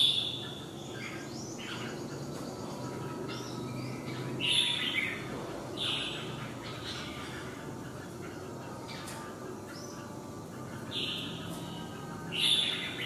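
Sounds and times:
bird calling in bright phrases: 0:00.0 - 0:13.0
low background hum: 0:00.0 - 0:13.0.

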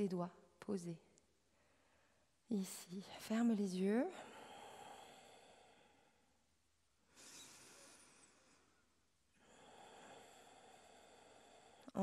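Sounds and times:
faint breath: 0:01.5 - 0:02.3, 0:04.1 - 0:06.4, 0:07.1 - 0:12.0.

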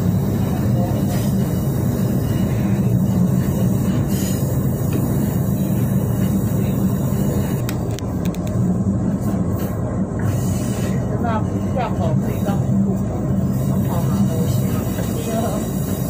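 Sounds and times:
train engine and wheels rumbling: 0:00.0 - 0:16.0.

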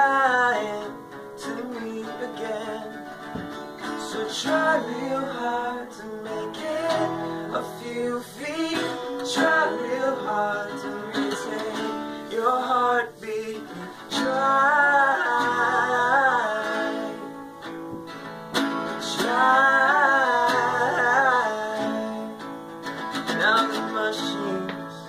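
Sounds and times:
acoustic guitars strummed and picked: 0:00.0 - 0:25.0.

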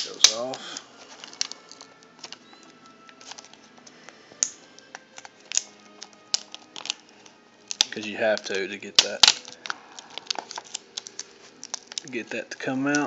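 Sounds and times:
faint music: 0:00.0 - 0:13.0
tape peeling crinkles and clicks: 0:00.0 - 0:13.0.

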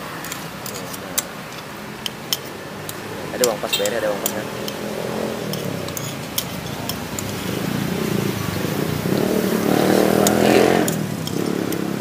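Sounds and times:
cutlery scraping ceramic plate: 0:00.2 - 0:07.8, 0:09.9 - 0:12.0
motorcycle engine passing: 0:04.2 - 0:12.0.

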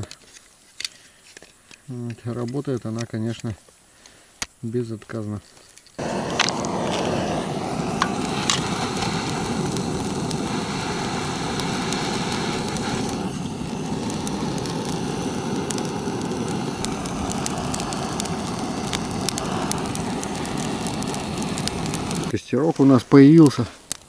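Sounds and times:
fire crackling and popping: 0:00.0 - 0:24.0
fire rushing hiss: 0:05.8 - 0:24.0.

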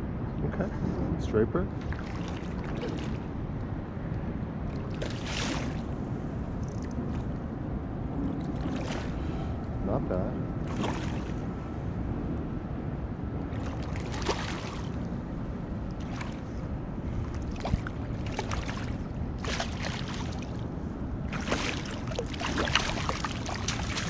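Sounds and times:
wind rumble on microphone: 0:00.0 - 0:24.0
fish splashing at the surface: 0:01.8 - 0:03.2, 0:04.8 - 0:05.9, 0:10.7 - 0:11.4, 0:13.6 - 0:15.0, 0:17.5 - 0:20.6, 0:21.3 - 0:24.0.

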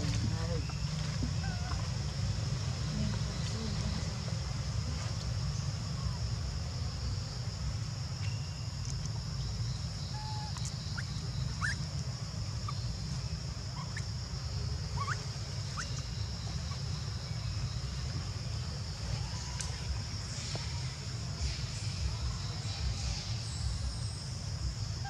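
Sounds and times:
steady low rumble: 0:00.0 - 0:25.0
steady high hiss: 0:01.8 - 0:25.0
small animal chirps: 0:10.1 - 0:11.9, 0:15.0 - 0:16.1.

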